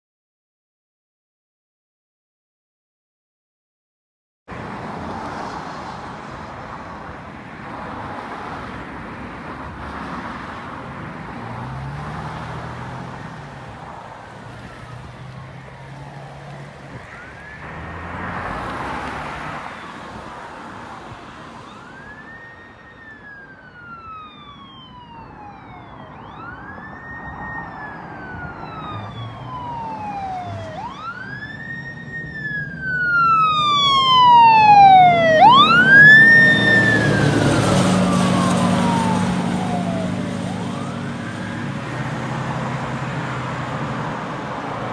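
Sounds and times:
traffic passing: 0:04.5 - 0:44.9
fire truck siren wailing: 0:11.4 - 0:44.9.

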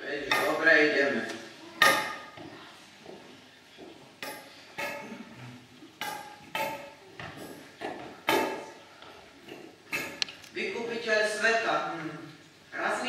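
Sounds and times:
footsteps on tiled floor: 0:02.4 - 0:04.2.

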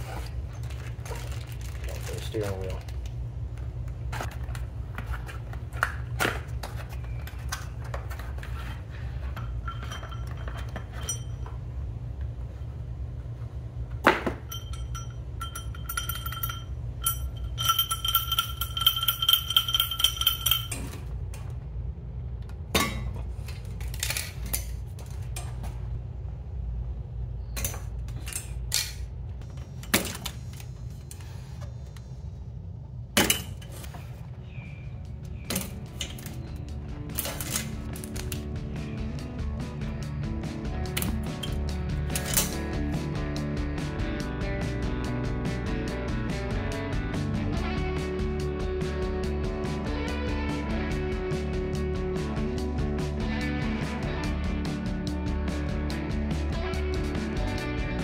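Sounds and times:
low steady hum: 0:00.0 - 0:58.0
metal parts clinking and knocking: 0:07.4 - 0:11.6, 0:14.2 - 0:21.1, 0:22.8 - 0:25.5, 0:37.1 - 0:38.5, 0:40.9 - 0:42.6
struck metal part ringing: 0:09.5 - 0:11.6, 0:14.2 - 0:21.0.

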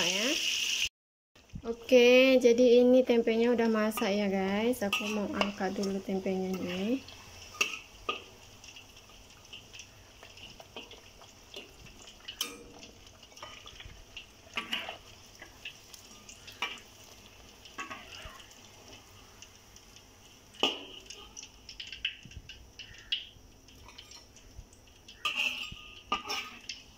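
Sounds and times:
faint oil sizzle: 0:00.0 - 0:26.9
metal spatula scraping wok: 0:03.6 - 0:08.3, 0:14.4 - 0:16.9, 0:17.8 - 0:18.4, 0:25.2 - 0:26.8.

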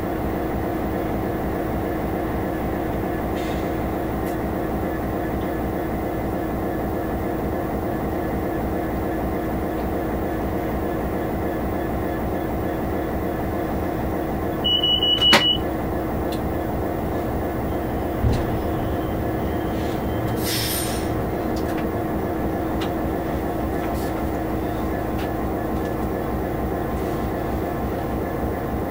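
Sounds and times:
diesel engine running: 0:00.0 - 0:28.9
short air hiss: 0:19.8 - 0:21.1.

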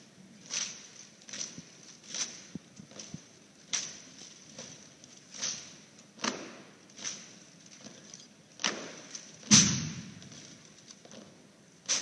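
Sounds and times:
rifles slapped and caught: 0:08.6 - 0:10.4.

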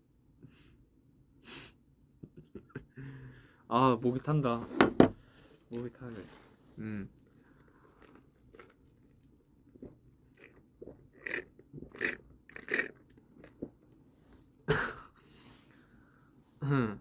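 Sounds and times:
straw and ice crackling: 0:07.4 - 0:13.8.

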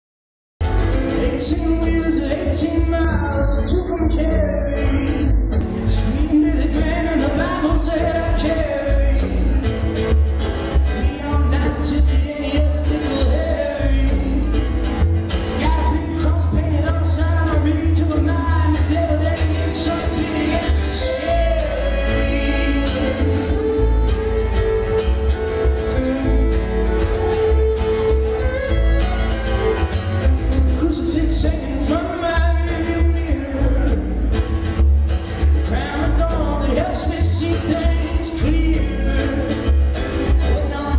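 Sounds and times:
strummed acoustic guitar: 0:00.6 - 0:40.9
upright bass: 0:00.6 - 0:40.9
man singing: 0:00.7 - 0:09.8, 0:10.8 - 0:26.2, 0:30.2 - 0:34.6, 0:35.6 - 0:40.9
fiddle: 0:05.6 - 0:32.5.

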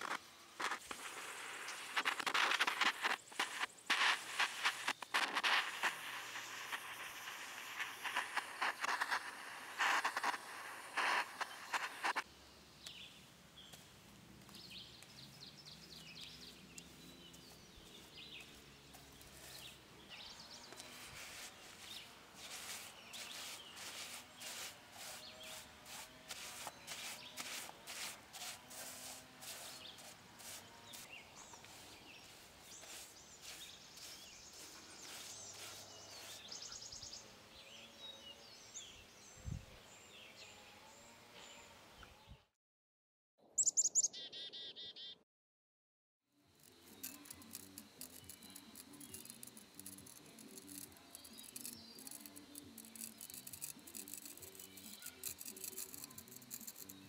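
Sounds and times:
blowtorch flame hissing: 0:00.0 - 0:12.2
stiff brush scrubbing wood: 0:00.0 - 0:12.2, 0:15.9 - 0:36.8, 0:46.6 - 0:57.0.

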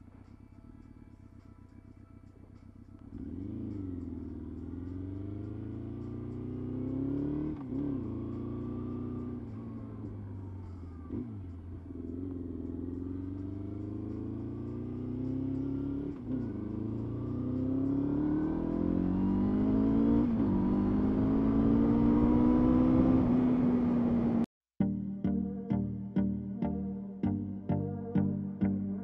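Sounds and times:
motorcycle engine accelerating: 0:02.7 - 0:24.5.

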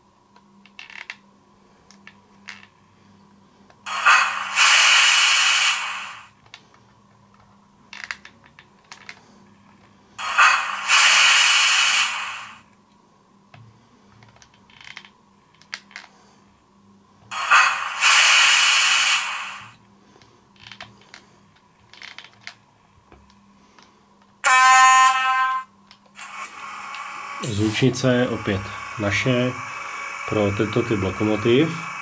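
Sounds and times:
faint steady hum: 0:00.0 - 0:32.0
model locomotive hisses: 0:03.9 - 0:06.4, 0:10.2 - 0:12.6, 0:17.3 - 0:19.8, 0:26.2 - 0:32.0.

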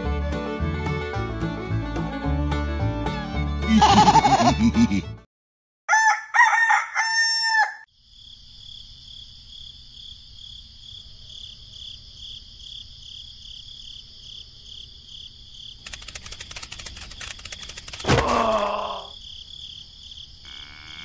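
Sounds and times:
rooster crowing: 0:05.9 - 0:07.9.

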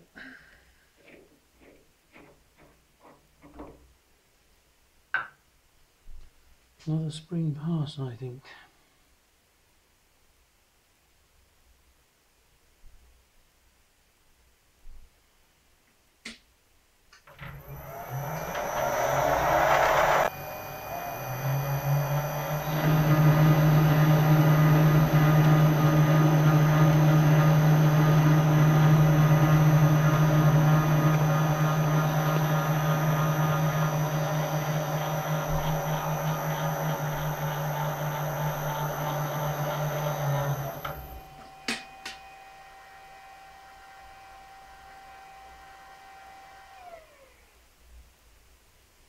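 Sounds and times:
rough rising lathe sound: 0:17.4 - 0:47.2
lathe humming: 0:17.4 - 0:47.4.

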